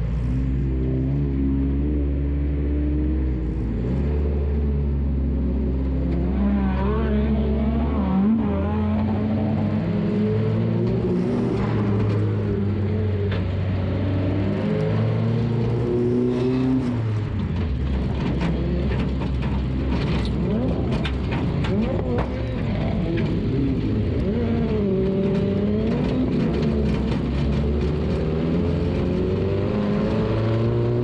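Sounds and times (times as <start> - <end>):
sharp knocks and rattles: 17.3 - 28.5.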